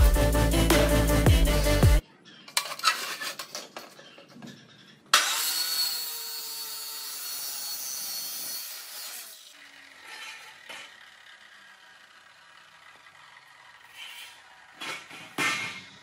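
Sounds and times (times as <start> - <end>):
chop saw grinding steel: 5.1 - 16.0.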